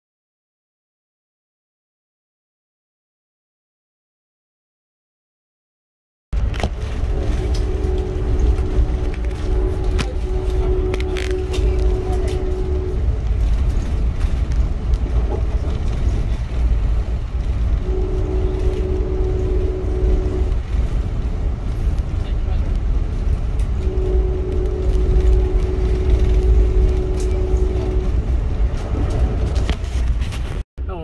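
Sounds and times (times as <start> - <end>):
low rumble: 6.4 - 31.0
train horn blasts: 6.5 - 14.4, 17.4 - 21.3, 23.2 - 29.7.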